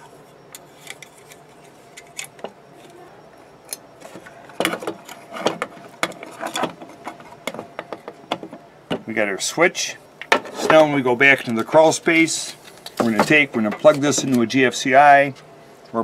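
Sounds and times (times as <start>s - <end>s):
metallic clicks and scrapes: 0.0s - 3.0s.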